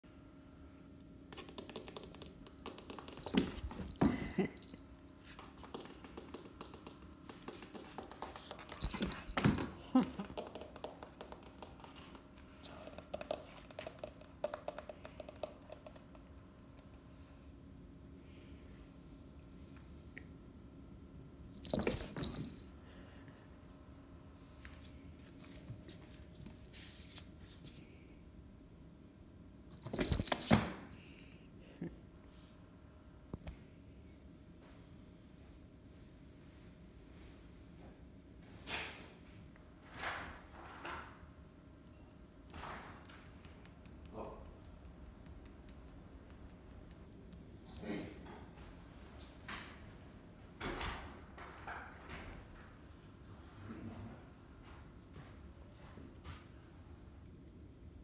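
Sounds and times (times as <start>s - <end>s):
cat collar bell jingling: 2.5s - 5.3s, 8.6s - 10.0s, 21.6s - 22.7s, 29.7s - 30.9s.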